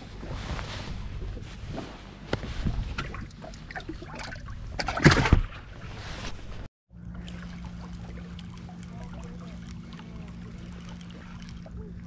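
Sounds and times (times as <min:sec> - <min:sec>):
fish splash and thump: 0:03.8 - 0:05.6
boat motor rumble: 0:06.9 - 0:12.0.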